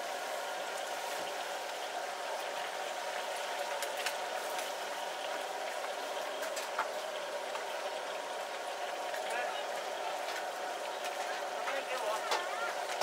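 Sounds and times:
food sizzling in hot oil: 0.0 - 13.0.

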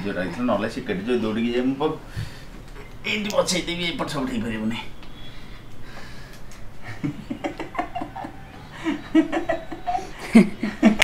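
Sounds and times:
people laughing: 6.8 - 11.0.

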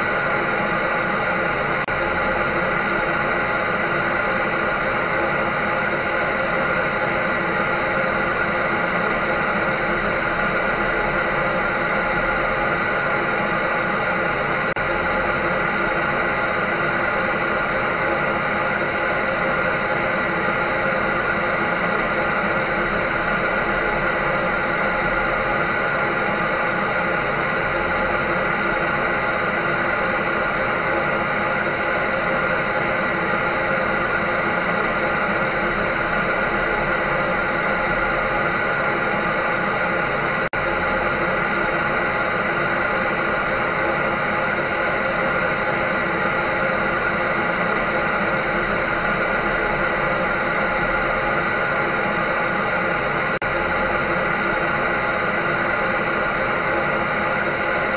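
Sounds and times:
electric dryer whirring: 0.0 - 57.9.

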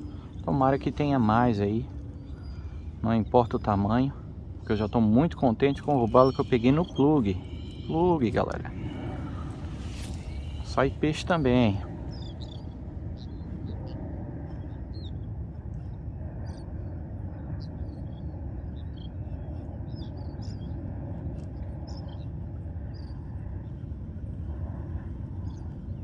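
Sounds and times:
sea and wind rushing: 0.0 - 26.0
bird chirps: 0.1 - 13.4.

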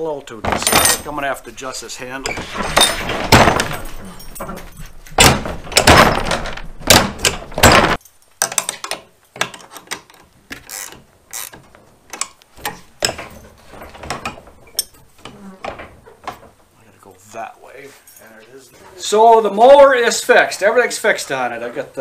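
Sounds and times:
rubbing and handling noise: 0.0 - 21.6
wrench clicking on bolts: 8.4 - 13.2.

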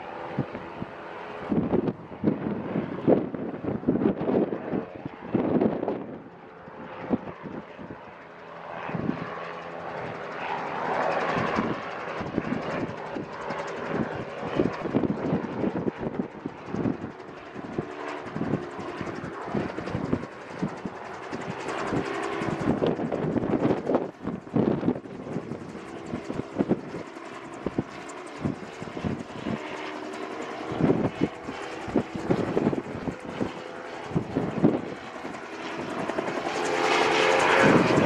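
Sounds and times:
aircraft engine droning overhead: 0.0 - 38.0
wind buffeting microphone: 0.2 - 38.0.

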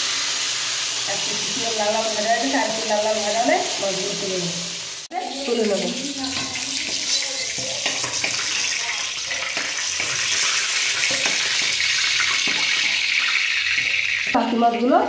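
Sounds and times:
hot oil sizzling: 0.0 - 15.0
metal spatula scraping pan: 6.2 - 14.6.

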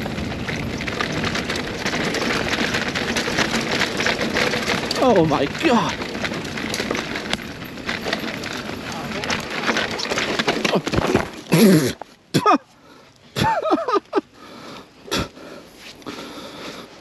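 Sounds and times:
bike tyres on dirt trail: 0.0 - 17.0
rider exclaiming: 4.8 - 6.2.

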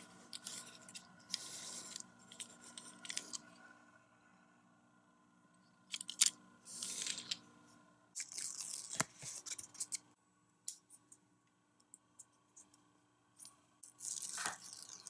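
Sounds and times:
plastic parts clicking: 5.9 - 7.4.

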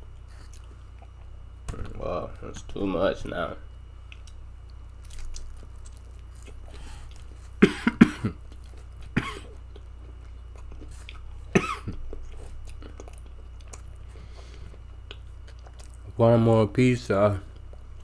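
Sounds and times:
faint chewing: 0.1 - 1.4, 4.0 - 7.6, 8.3 - 16.1, 17.4 - 18.0
man clearing throat: 7.6 - 8.4, 9.1 - 9.6, 11.5 - 12.0
man coughing: 7.6 - 8.4, 9.1 - 9.6, 11.5 - 12.0.

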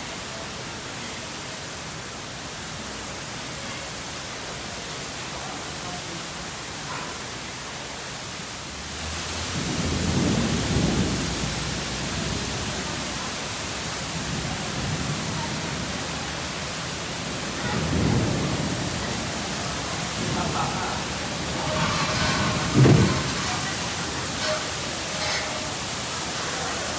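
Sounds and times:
heavy rain pouring: 0.0 - 26.9
thunder rumbling: 9.4 - 13.1, 16.9 - 26.0.

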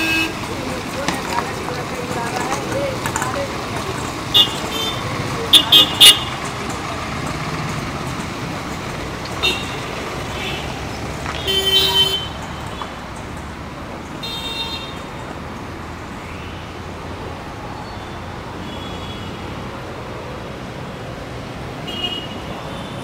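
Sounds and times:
vehicle horns tooting: 0.0 - 0.5, 4.3 - 6.6, 9.4 - 13.0, 14.2 - 15.1, 17.8 - 19.5, 21.8 - 23.0
road traffic: 0.0 - 23.0.

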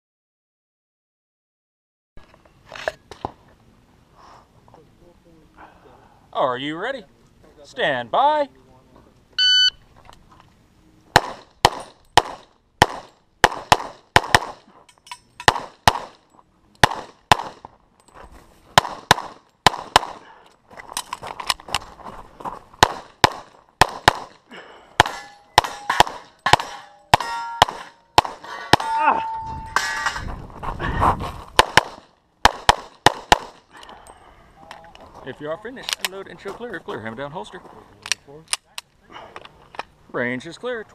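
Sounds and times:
pistol shots: 11.1 - 14.7, 15.4 - 16.2, 16.8 - 17.7, 18.8 - 20.3, 22.8 - 24.4, 25.0 - 28.9, 31.6 - 33.7
steel targets clanging: 25.0 - 30.3.

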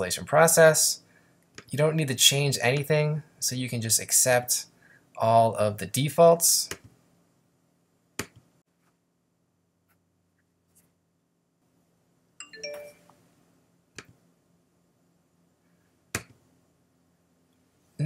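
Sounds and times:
electronic alert chime: 12.4 - 13.1.

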